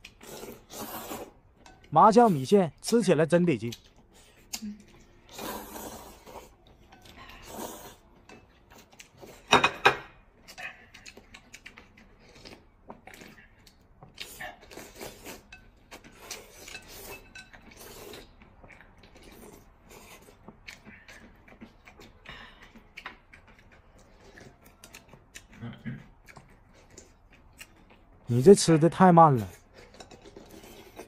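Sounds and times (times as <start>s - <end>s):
noodles being slurped: 0.0s - 1.4s, 5.2s - 8.2s
chewing: 3.6s - 9.5s, 10.3s - 28.5s, 29.4s - 31.0s.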